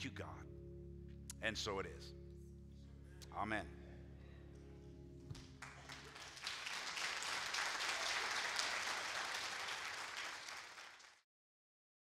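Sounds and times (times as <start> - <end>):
sustained musical chord: 0.0 - 5.8
congregation applause: 5.4 - 11.2.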